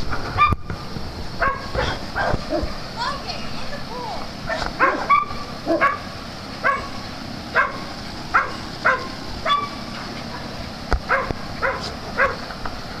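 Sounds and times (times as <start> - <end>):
small dog yapping: 8.4 - 10.5, 11.1 - 12.4.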